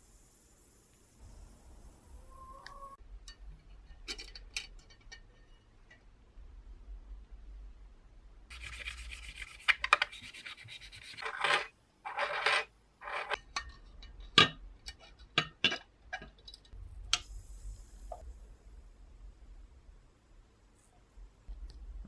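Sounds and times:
metal scraping on glass jar: 0:11.1 - 0:13.4.

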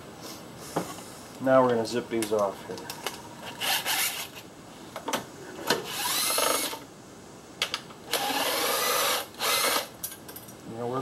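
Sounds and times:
power tool bursts and clicks: 0:05.8 - 0:06.8, 0:08.1 - 0:09.9
power tool motor whine: 0:05.9 - 0:06.8, 0:08.1 - 0:09.9.

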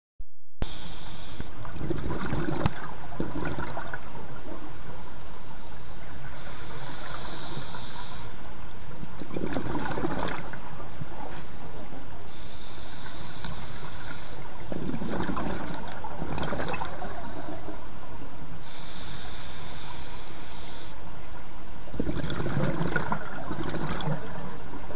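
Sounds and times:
bubbling exhalations: 0:01.8 - 0:04.0, 0:09.2 - 0:10.6, 0:14.6 - 0:17.6, 0:22.0 - 0:24.5
hissing regulator inhalations: 0:06.3 - 0:08.4, 0:12.3 - 0:14.5, 0:18.6 - 0:21.0.

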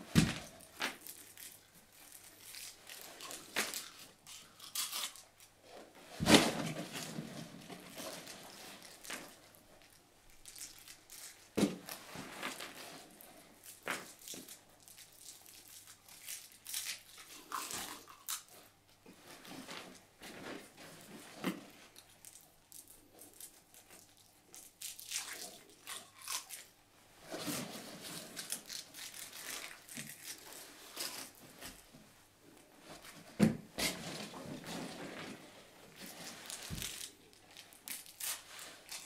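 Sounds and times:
wrapper snapping: 0:00.1 - 0:05.5, 0:10.3 - 0:12.7, 0:22.2 - 0:26.7, 0:28.2 - 0:31.8, 0:36.0 - 0:39.0
sweet wrapper crinkling and tearing: 0:00.5 - 0:05.6, 0:07.7 - 0:12.7, 0:13.6 - 0:18.6, 0:22.0 - 0:26.8, 0:28.0 - 0:31.8, 0:36.0 - 0:39.0.

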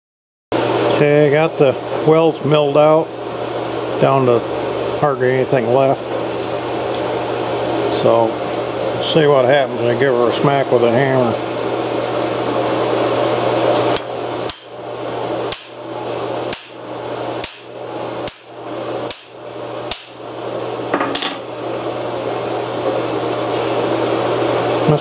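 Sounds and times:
hammer striking steel: 0:14.5 - 0:14.8, 0:15.5 - 0:15.8, 0:16.5 - 0:16.8, 0:17.4 - 0:18.5, 0:19.1 - 0:20.2.

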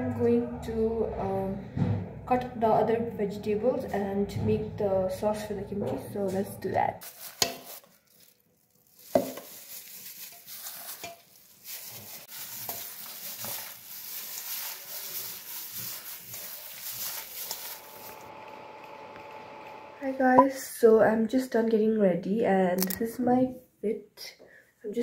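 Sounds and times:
wet rustling of mixing cabbage: 0:07.0 - 0:18.4.

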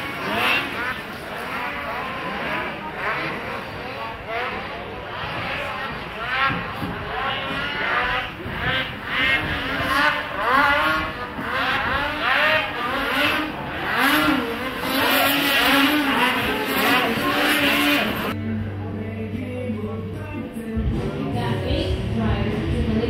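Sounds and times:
snowmobile engines revving: 0:00.0 - 0:18.4.

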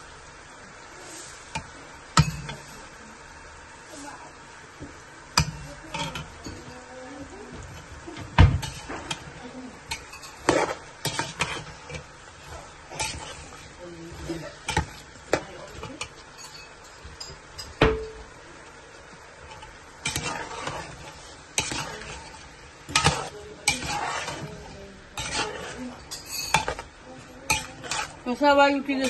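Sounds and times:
onions sizzling in oil: 0:00.0 - 0:29.0
spoon scraping metal pot: 0:05.4 - 0:06.8, 0:07.5 - 0:17.8, 0:19.4 - 0:29.0.

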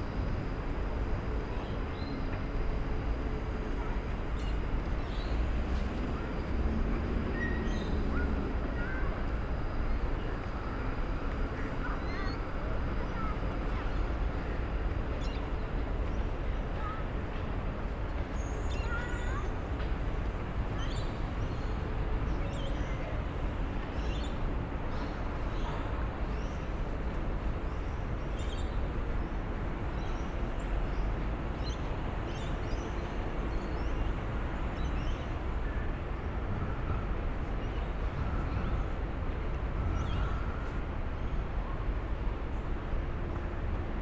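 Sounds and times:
city traffic noise: 0:00.0 - 0:44.0
small birds chirping: 0:11.6 - 0:14.1.

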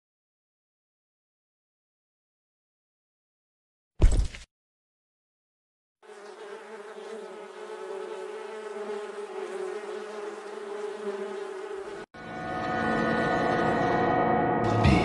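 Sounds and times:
bees buzzing: 0:06.0 - 0:12.1.

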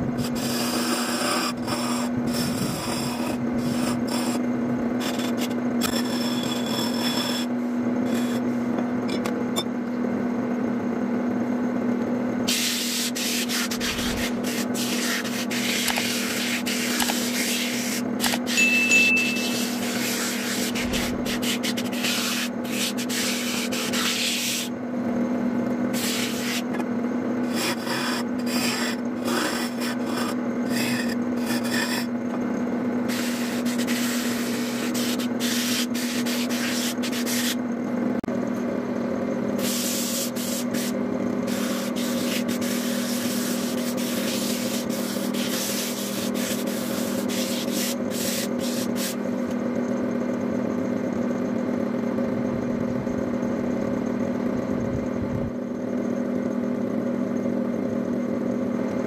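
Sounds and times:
wood lathe humming: 0:00.1 - 0:08.9, 0:12.9 - 0:24.7, 0:25.9 - 0:37.5
tool rasping against wood: 0:00.2 - 0:04.4, 0:05.0 - 0:08.5, 0:12.5 - 0:18.6, 0:19.2 - 0:24.7, 0:25.9 - 0:26.8, 0:27.4 - 0:32.2, 0:33.1 - 0:37.6, 0:39.6 - 0:49.2.

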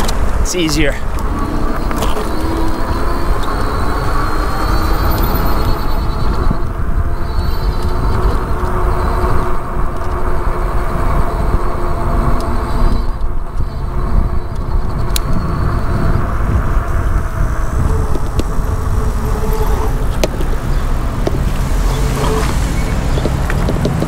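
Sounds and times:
cars running nearby: 0:00.0 - 0:24.0
wind and road rumble: 0:00.0 - 0:24.0
sharp ticks: 0:12.2 - 0:15.8.

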